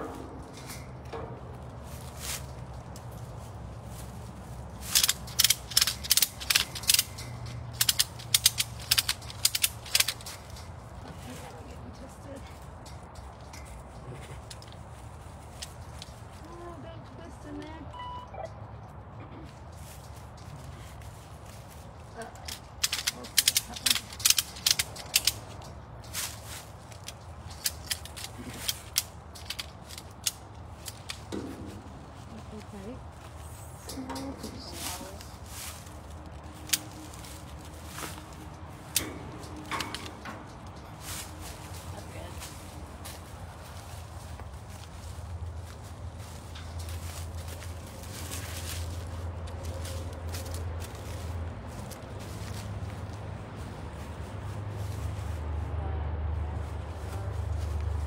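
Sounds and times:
steady low hum: 0:00.0 - 0:54.9
rapid ratcheting clicks: 0:04.8 - 0:11.0, 0:22.4 - 0:31.5.

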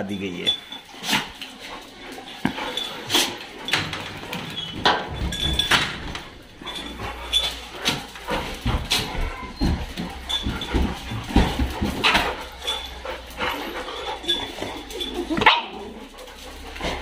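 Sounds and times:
dog claws clicking on tiled floor: 0:00.6 - 0:17.0.

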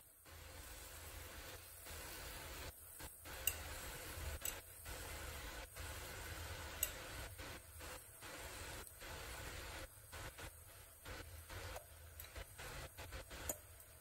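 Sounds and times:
pot hissing on stove: 0:00.0 - 0:14.0
metal spoon ticking against glass bowl: 0:03.4 - 0:03.7, 0:04.4 - 0:04.6.

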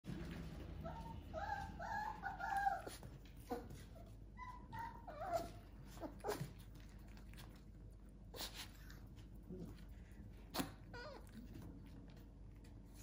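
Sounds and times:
puppies whimpering: 0:00.8 - 0:06.7, 0:10.6 - 0:11.7.

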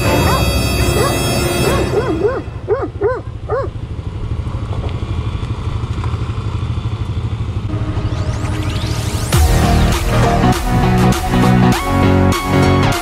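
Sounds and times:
dog barking: 0:00.0 - 0:03.8
motorcycle engine running: 0:00.0 - 0:11.6.

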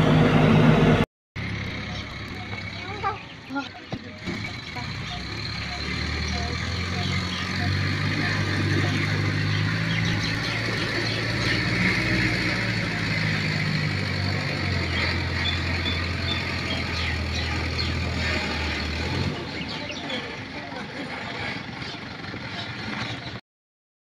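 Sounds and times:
diesel engine running: 0:00.0 - 0:23.4.

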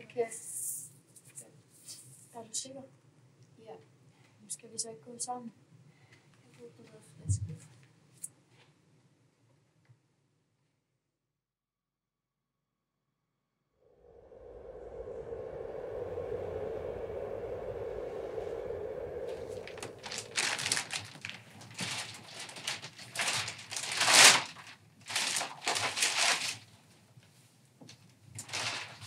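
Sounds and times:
low steady hum: 0:14.0 - 0:24.0
rustling and clattering: 0:19.8 - 0:29.0.

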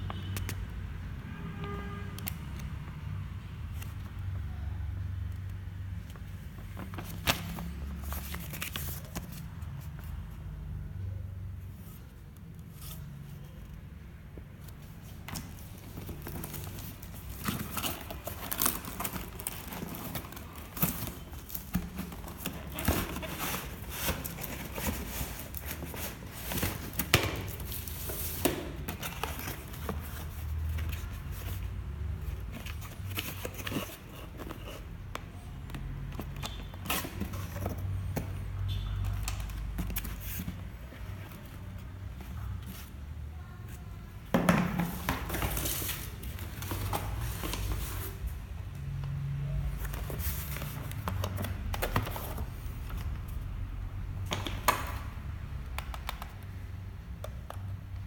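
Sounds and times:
packaging crinkling and tearing: 0:15.4 - 0:31.1.

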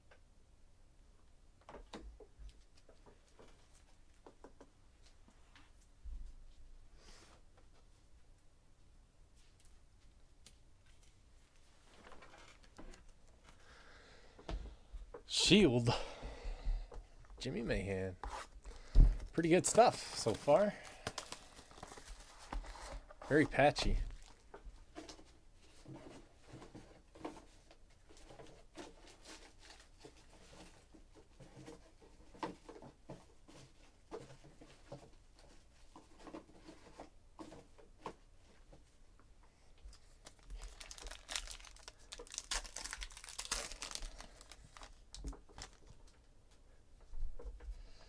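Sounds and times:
paper wrapper crinkling and tearing: 0:19.4 - 0:24.4, 0:39.9 - 0:46.1.

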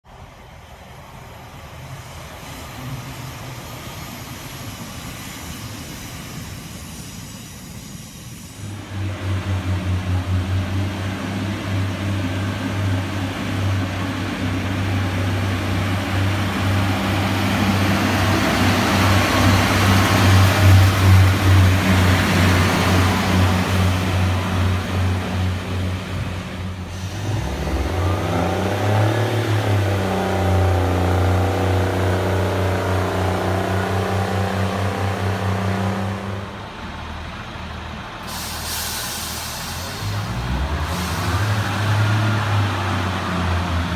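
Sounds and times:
train wheel and rail noise: 0:00.0 - 0:43.9
diesel engine throbbing drone: 0:08.6 - 0:38.5.

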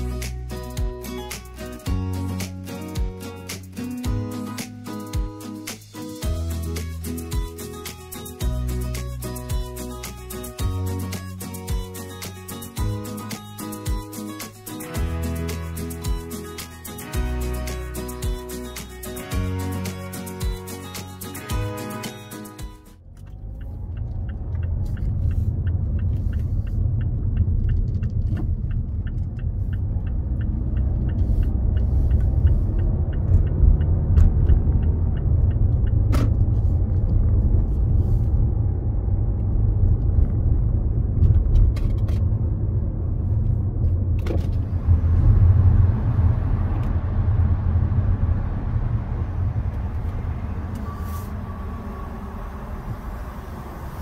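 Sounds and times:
car engine and tyres rumbling: 0:00.0 - 0:54.0
light regular ticking: 0:23.2 - 0:36.1.

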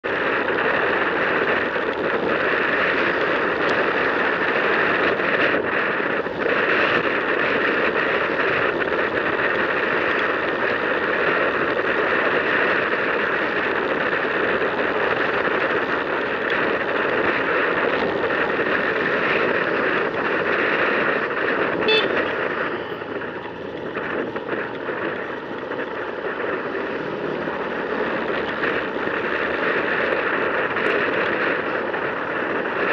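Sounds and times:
motor scooter engine: 0:00.0 - 0:32.9
street traffic: 0:00.0 - 0:32.9
wind noise: 0:00.0 - 0:32.9
horn toot: 0:21.7 - 0:23.0.

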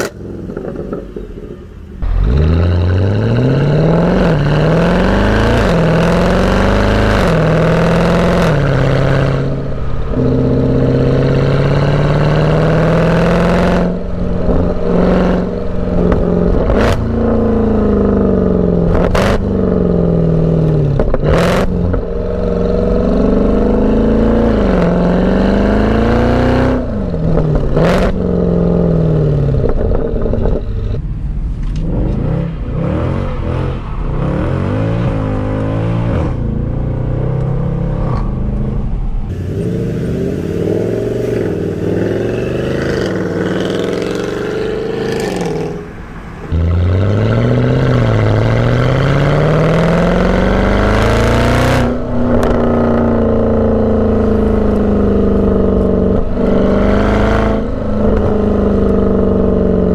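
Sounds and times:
car engine accelerating hard: 0:00.0 - 0:59.9
exhaust cracks: 0:00.0 - 0:59.9.

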